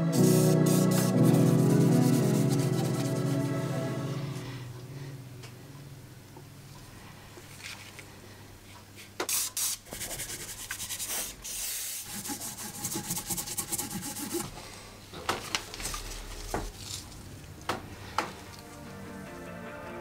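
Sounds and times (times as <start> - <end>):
gloved hand scrubbing rubber hose: 12.0 - 14.5.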